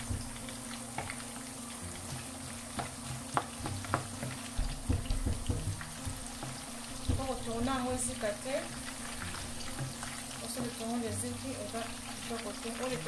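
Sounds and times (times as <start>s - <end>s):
onions sizzling in oil: 0.0s - 13.0s
spatula knocking against pan: 2.7s - 8.0s.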